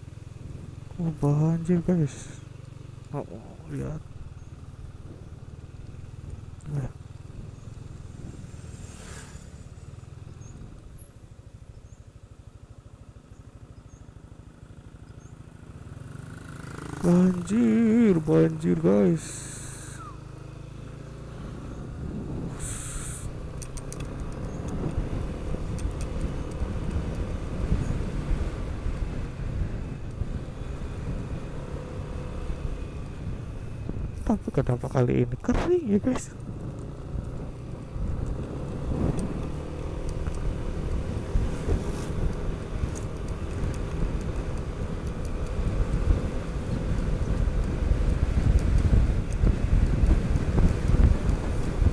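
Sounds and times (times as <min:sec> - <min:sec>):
scooter engine: 0:00.0 - 0:34.2, 0:36.3 - 0:51.9
road noise: 0:00.0 - 0:51.9
short hiss: 0:08.7 - 0:09.8, 0:22.5 - 0:23.4
wind buffeting microphone: 0:21.8 - 0:23.4, 0:36.4 - 0:51.9.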